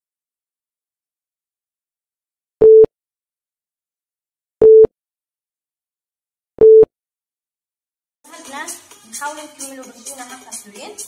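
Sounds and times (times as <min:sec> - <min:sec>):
countdown timer beeps: 0:04.6 - 0:04.9, 0:06.6 - 0:06.9.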